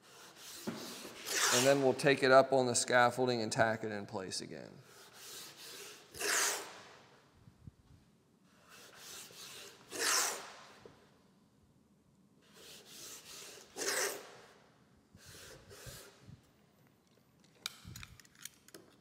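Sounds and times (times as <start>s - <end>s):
hand rubbing tape on wood: 0.0s - 1.9s, 12.4s - 14.4s.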